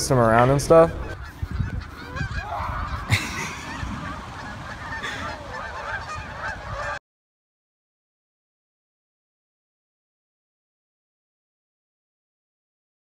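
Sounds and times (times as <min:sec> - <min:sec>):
geese honking: 0:00.0 - 0:07.0.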